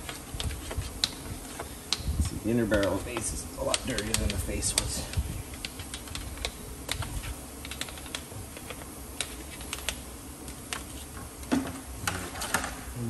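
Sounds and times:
brush clicking against rim: 2.7s - 6.5s.

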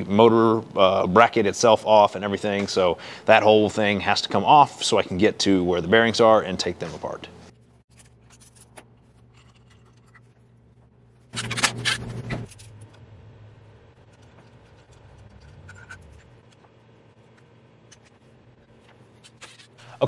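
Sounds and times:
low steady hum: 0.0s - 20.0s
metallic clicks and scrapes: 7.9s - 10.5s, 14.0s - 19.8s.

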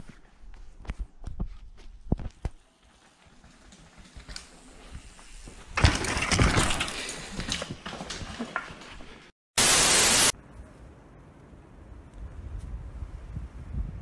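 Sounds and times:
bike crash impact: 5.7s - 7.2s
loud static-like hiss: 9.6s - 10.3s.

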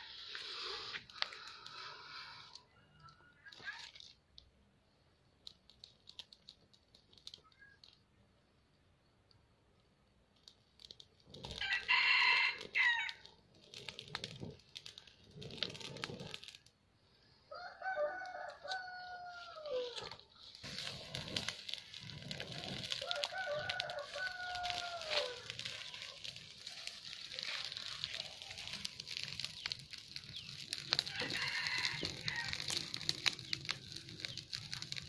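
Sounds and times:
fire crackling: 0.0s - 35.0s
rooster crowing: 11.6s - 13.2s, 17.5s - 20.1s, 22.8s - 26.0s, 30.9s - 33.0s.

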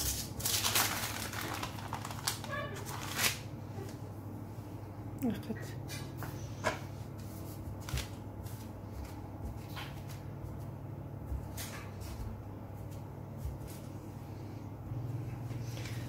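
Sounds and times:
parchment paper rustling: 0.0s - 4.0s, 6.3s - 10.7s
steady low hum: 0.0s - 16.0s.

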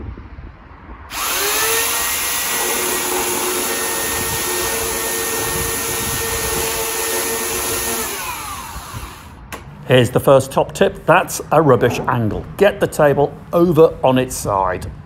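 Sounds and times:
electric chainsaw cutting wood: 1.1s - 9.4s.

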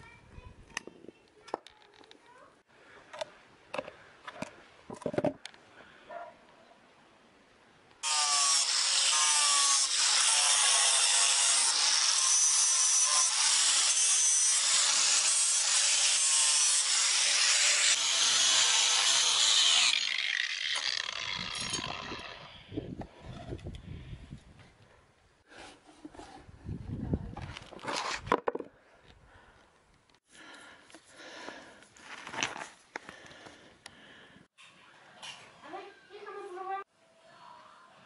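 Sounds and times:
angle grinder grinding wood: 8.0s - 23.6s.

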